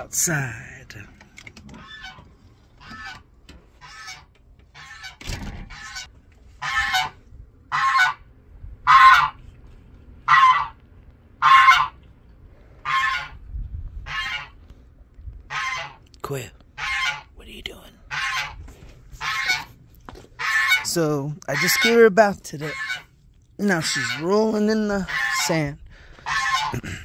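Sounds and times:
goose honking: 1.7 - 9.6, 10.2 - 10.8, 11.4 - 12.1, 12.8 - 13.4, 14.0 - 14.6, 15.5 - 16.0, 16.7 - 17.4, 18.1 - 26.9.

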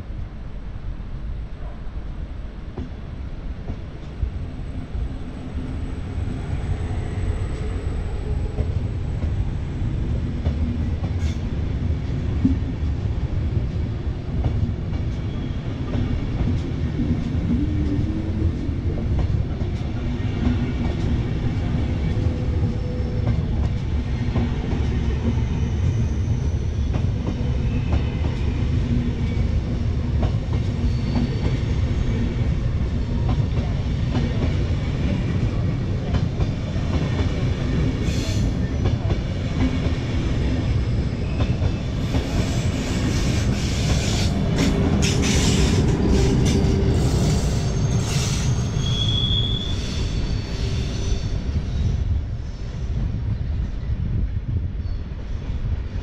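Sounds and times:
train wheels rumbling on rails: 0.0 - 56.0
train clatter: 10.2 - 51.6.

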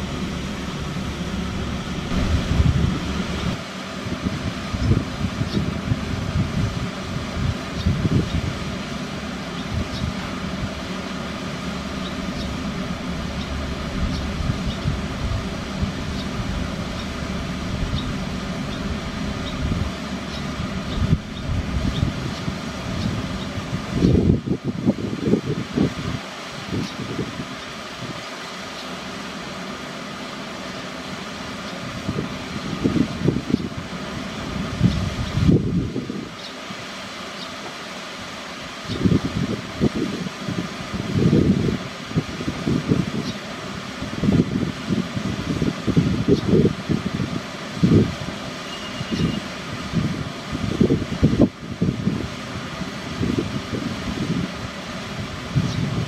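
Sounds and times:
wind buffeting microphone: 0.0 - 28.2, 31.8 - 36.4, 38.7 - 56.0
low background rumble: 0.0 - 36.4
mechanical hum and hiss: 0.0 - 56.0
faint high chirps: 48.6 - 49.4.

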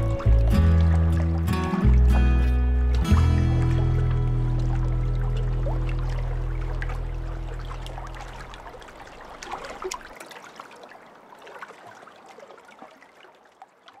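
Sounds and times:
background music: 0.0 - 8.4
water dripping from paddle: 0.0 - 14.0.

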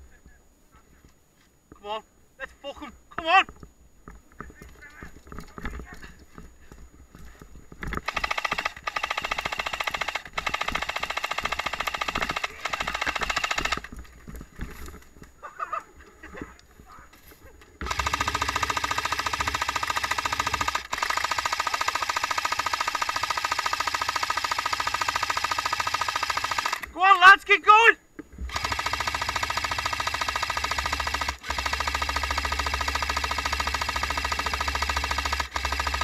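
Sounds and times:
airsoft gun full-auto bursts: 8.0 - 14.0, 17.8 - 26.9, 28.5 - 36.0.

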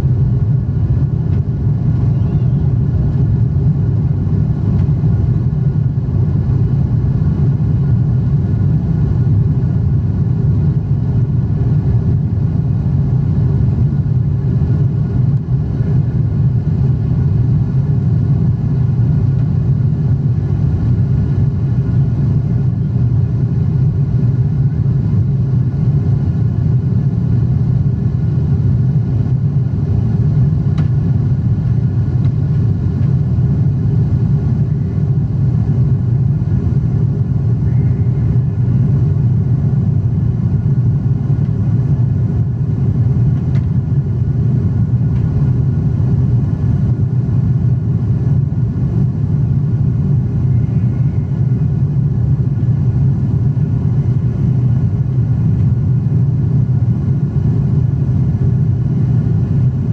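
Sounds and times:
airplane cabin roar: 0.0 - 59.9.

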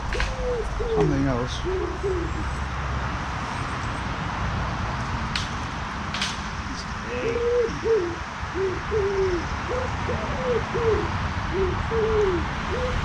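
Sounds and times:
pigeon cooing: 0.0 - 2.6, 6.7 - 13.0.

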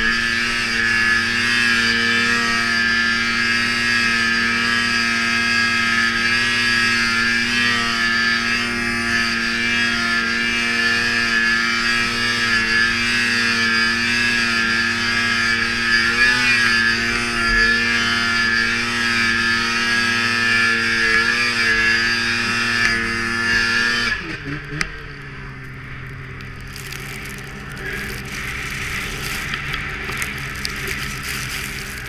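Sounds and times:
snowmobile engine revving: 0.0 - 32.0.

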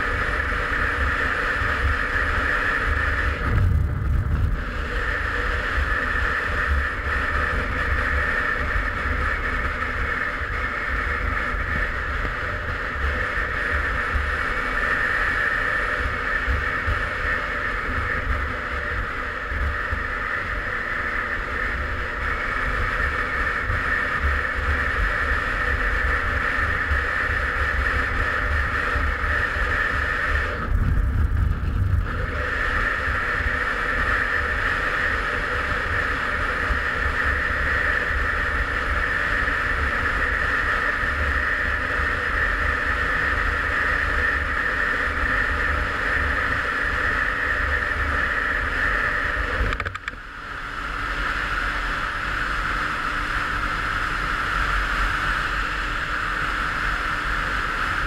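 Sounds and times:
two-stroke engine at high revs: 0.0 - 58.0
wind buffeting on microphone: 0.6 - 35.0.

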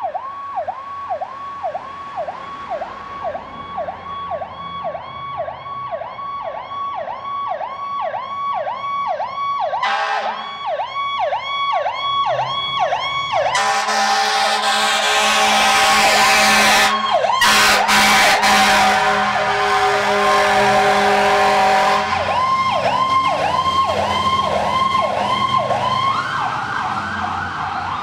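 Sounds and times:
ambulance siren yelp: 0.0 - 28.0
air horn: 9.8 - 10.5, 13.5 - 22.3.

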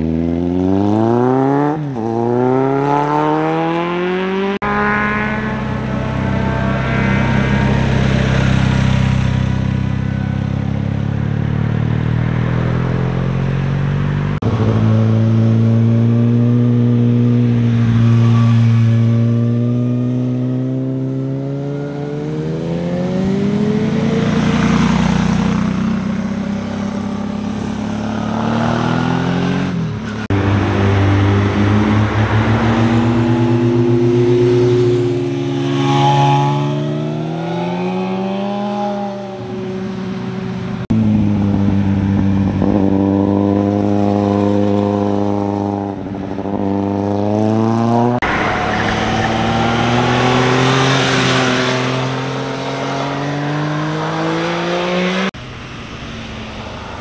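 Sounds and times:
motorcycle engines passing: 0.0 - 57.0.

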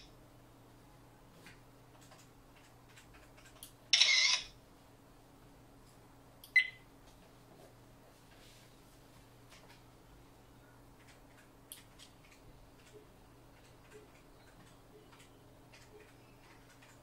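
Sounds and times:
electronic shutter sound: 4.0 - 4.5.

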